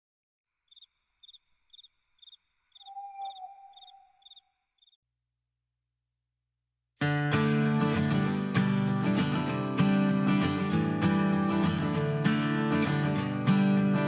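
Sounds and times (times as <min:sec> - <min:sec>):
crickets chirping: 0:00.5 - 0:05.0.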